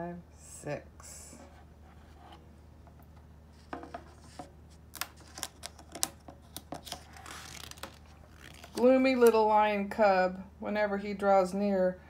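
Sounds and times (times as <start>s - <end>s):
low steady hum: 0.0s - 12.0s
paper pages rustling: 3.5s - 8.9s.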